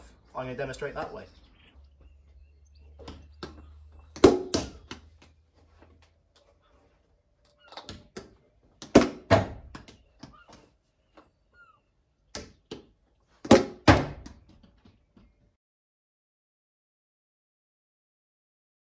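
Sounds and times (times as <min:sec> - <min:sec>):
plastic bat hitting ball: 0:03.0 - 0:05.2, 0:07.8 - 0:10.6, 0:12.3 - 0:14.6.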